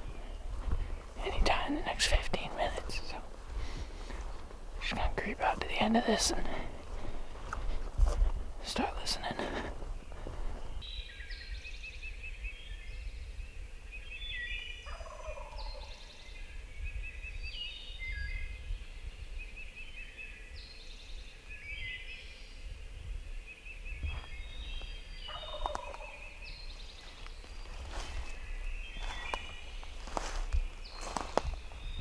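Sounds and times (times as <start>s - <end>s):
songbirds chirping and trilling: 0.0s - 32.0s
wild turkey gobbling: 14.9s - 15.6s, 25.3s - 26.2s.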